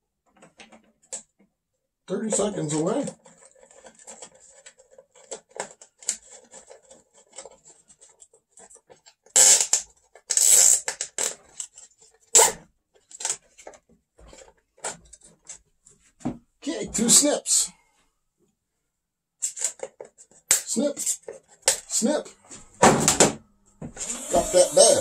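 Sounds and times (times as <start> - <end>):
plastic parts clicking and rattling: 0.2 - 1.5, 2.1 - 15.6, 19.4 - 22.1
zip ties ratcheting tight: 10.3 - 10.8.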